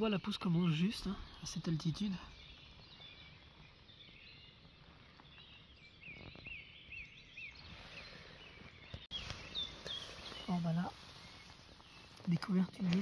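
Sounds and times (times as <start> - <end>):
small bird singing: 0.0 - 13.0
soft rustles: 8.6 - 13.0.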